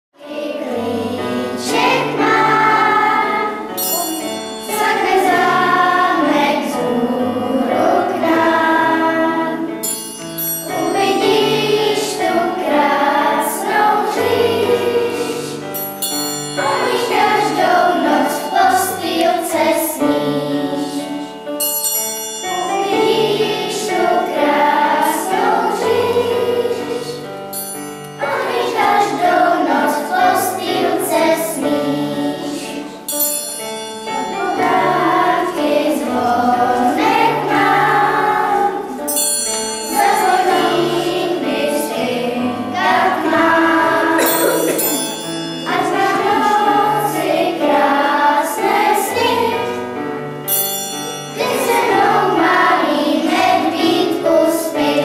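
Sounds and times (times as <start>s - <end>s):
children's choir singing: 0.2s - 55.0s
bright shimmering accent: 1.3s - 8.2s, 9.7s - 14.2s, 14.8s - 19.9s, 20.8s - 25.9s, 27.0s - 30.1s, 32.5s - 38.2s, 39.0s - 41.5s, 42.5s - 47.6s.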